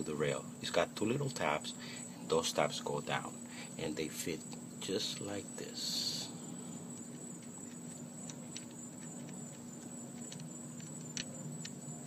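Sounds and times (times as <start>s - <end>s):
steady low hum: 0.0s - 12.0s
gloved fingers rubbing: 6.8s - 11.8s.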